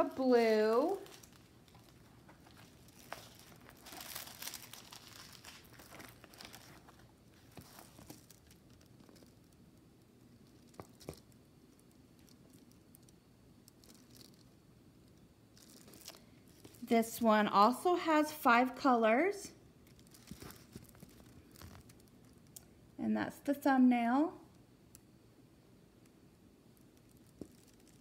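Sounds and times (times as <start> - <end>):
plastic film crinkling and rustling: 0.0 - 17.2, 19.8 - 22.7, 26.7 - 28.0.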